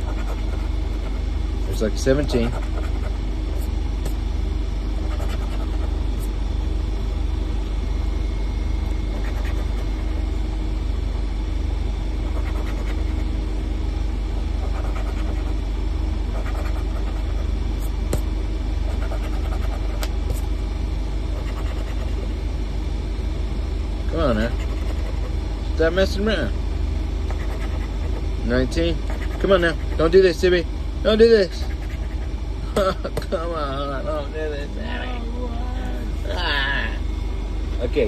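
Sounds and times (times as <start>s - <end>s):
coin scratching ticket: 0.0s - 1.1s, 2.3s - 3.7s, 5.0s - 6.3s, 9.1s - 10.1s, 12.3s - 13.2s, 14.6s - 15.6s, 16.4s - 17.9s, 18.9s - 20.5s, 21.4s - 22.2s, 24.5s - 25.3s, 27.3s - 28.3s, 29.0s - 30.1s
steady low rumble: 0.0s - 38.0s.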